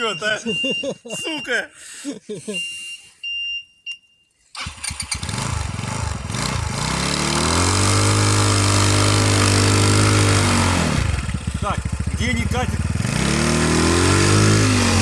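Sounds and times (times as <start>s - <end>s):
snowmobile engine revving: 4.6s - 15.0s.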